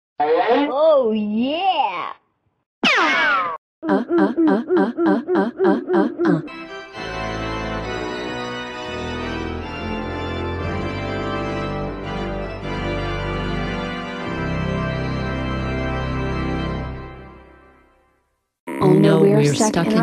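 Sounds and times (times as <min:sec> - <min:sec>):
organ playing sustained chords: 0:06.5 - 0:17.4.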